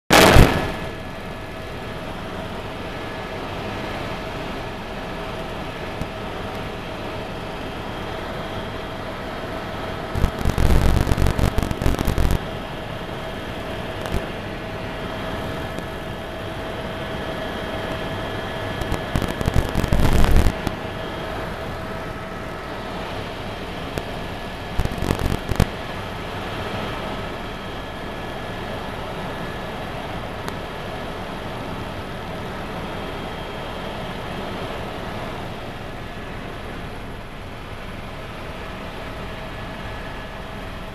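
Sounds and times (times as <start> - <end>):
loud crackling bursts: 0.1 - 1.0, 10.1 - 12.7, 13.3 - 14.4, 17.9 - 20.8, 23.6 - 25.8
helicopter engine and rotor drone: 0.1 - 40.9
steady whine: 0.1 - 40.9.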